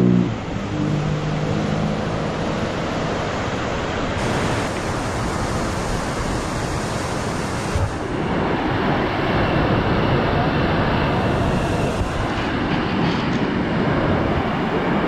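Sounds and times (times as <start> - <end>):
motorcycle engine hum: 0.0 - 5.8
wind rushing on microphone: 0.0 - 15.0.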